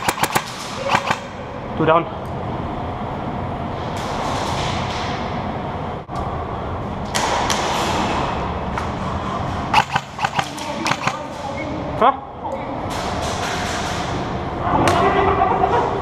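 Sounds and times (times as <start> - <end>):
sharp knocks: 9.7 - 11.3.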